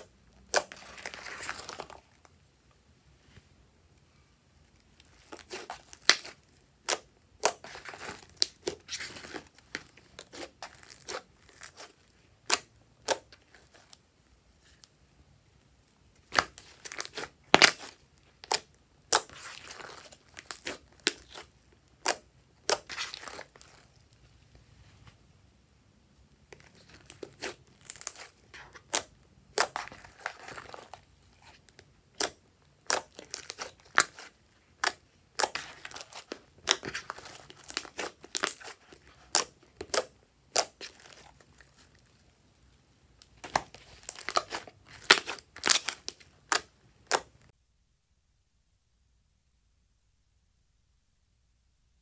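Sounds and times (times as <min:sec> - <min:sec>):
slime crackling and popping: 0:04.9 - 0:13.7, 0:16.2 - 0:23.8, 0:26.6 - 0:42.1, 0:43.2 - 0:47.5.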